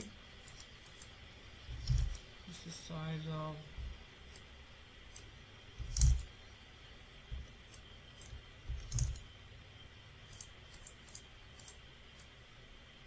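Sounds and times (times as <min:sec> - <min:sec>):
computer mouse clicking: 0:00.0 - 0:01.1, 0:01.7 - 0:02.3, 0:05.1 - 0:06.3, 0:07.7 - 0:09.3, 0:10.3 - 0:12.3.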